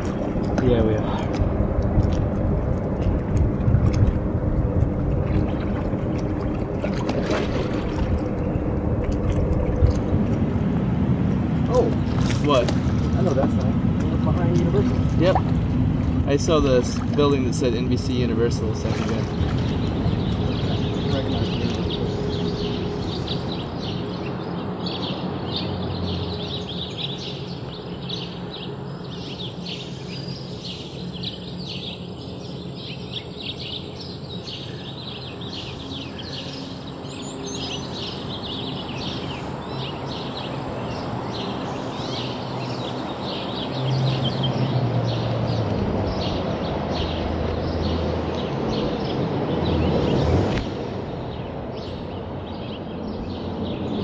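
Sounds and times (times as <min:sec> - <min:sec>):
low hum: 0:00.0 - 0:39.8
small birds chirping: 0:16.2 - 0:54.0.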